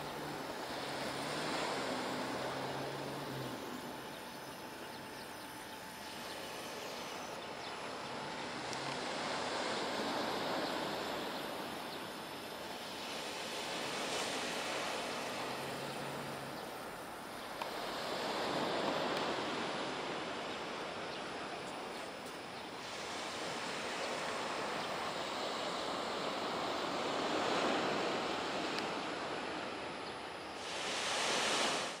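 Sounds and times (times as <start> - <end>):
ocean waves washing onto shore: 0.0 - 32.0.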